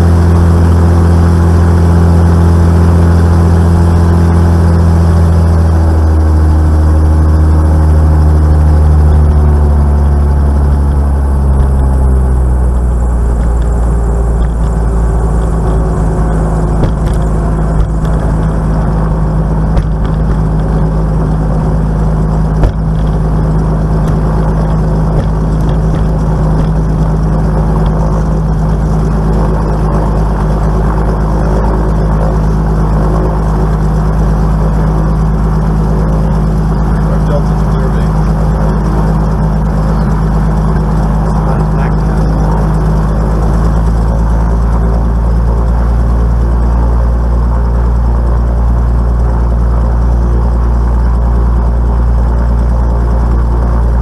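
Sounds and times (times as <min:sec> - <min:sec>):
aircraft propeller engine: 0:00.0 - 0:54.0
sharp knocks: 0:16.8 - 0:18.5, 0:19.7 - 0:20.8, 0:22.5 - 0:23.2, 0:25.1 - 0:26.8.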